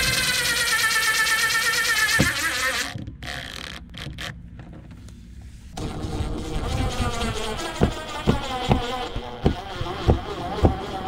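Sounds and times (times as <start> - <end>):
cordless drill motor whining: 0.0 - 4.3.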